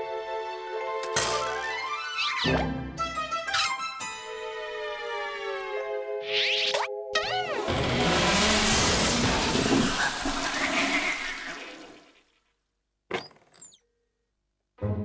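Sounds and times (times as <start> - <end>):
cartoon rushing crashing noise: 6.3 - 12.2
quick squeaky sounds: 13.1 - 13.9.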